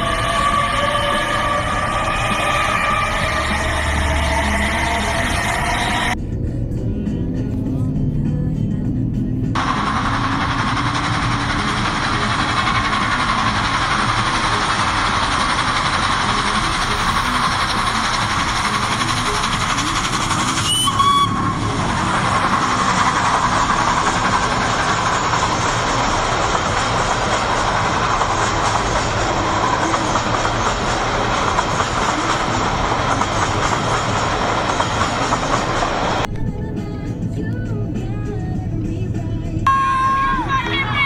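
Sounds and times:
steam train passing with hiss: 0:00.0 - 0:06.2, 0:09.6 - 0:36.3
train whistle: 0:00.0 - 0:06.2, 0:15.3 - 0:25.4, 0:39.7 - 0:41.0.

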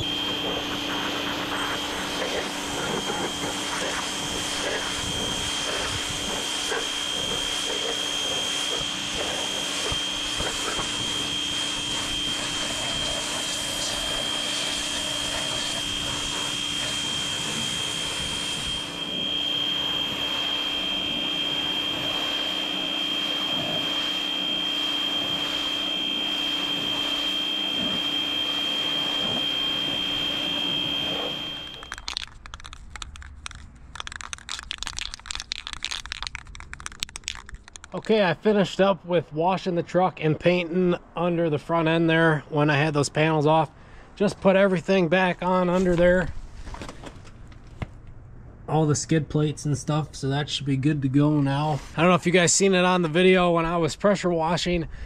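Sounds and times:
water jet spraying on metal: 0:00.0 - 0:31.8
pressure washer motor whine: 0:00.0 - 0:32.2.

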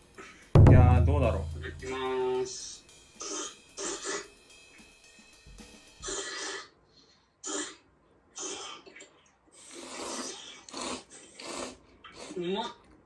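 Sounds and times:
noodles being slurped: 0:09.6 - 0:12.4.

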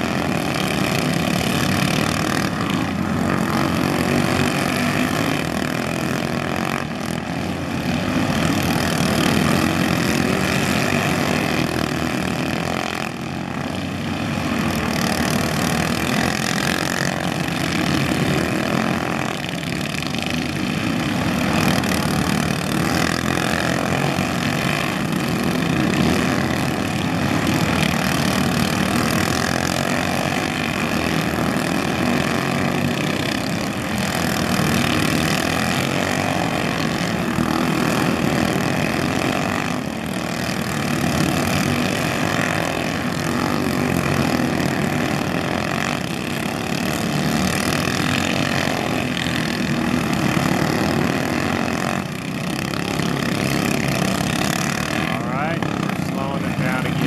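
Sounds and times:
racing kart engines buzzing: 0:00.0 - 0:57.0.

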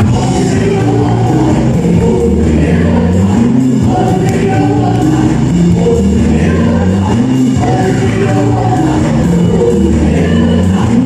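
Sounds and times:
loud music with singing: 0:00.0 - 0:11.0.

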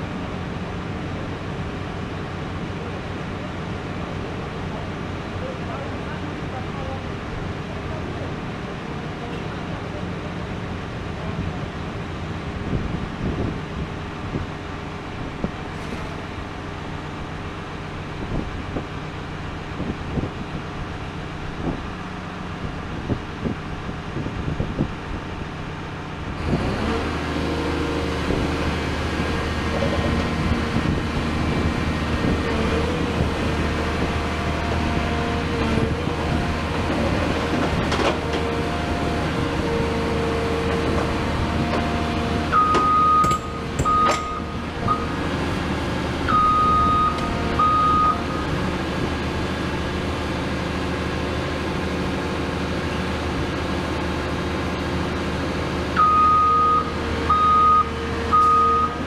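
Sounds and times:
excavator engine drone: 0:00.0 - 0:59.0.

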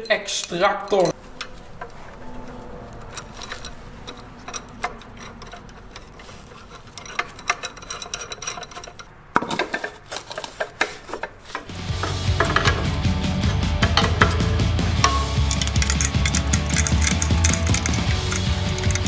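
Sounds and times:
light metallic clinks: 0:03.1 - 0:09.1, 0:15.0 - 0:19.0.

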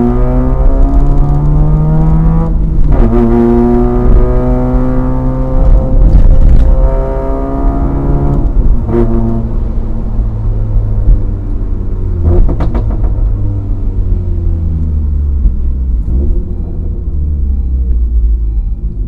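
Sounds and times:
car engine revving from cabin: 0:00.0 - 0:09.8.

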